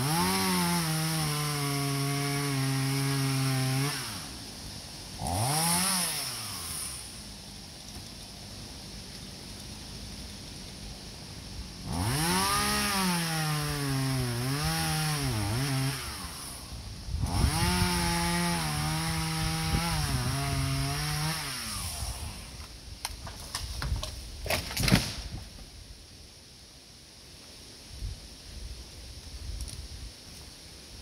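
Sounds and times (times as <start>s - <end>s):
chainsaw cutting wood: 0.0s - 7.3s, 11.8s - 25.2s
wood cracking: 23.0s - 25.4s.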